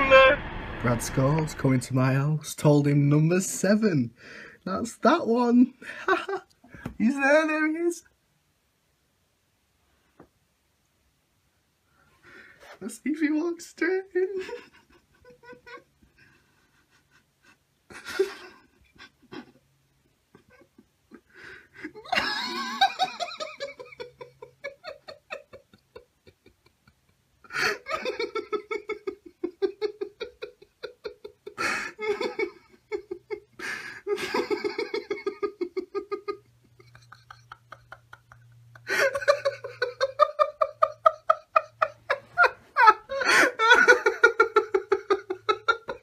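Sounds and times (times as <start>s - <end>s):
person laughing uncontrollably: 14.3s - 19.6s, 20.3s - 46.0s.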